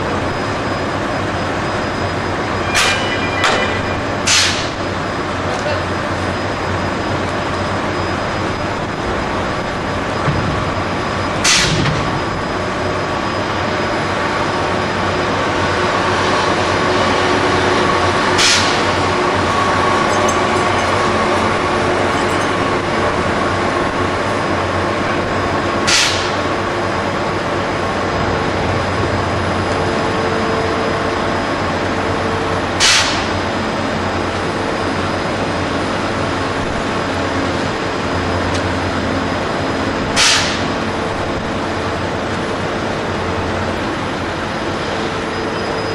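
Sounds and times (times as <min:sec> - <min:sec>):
crane machinery running: 0:00.0 - 0:45.9.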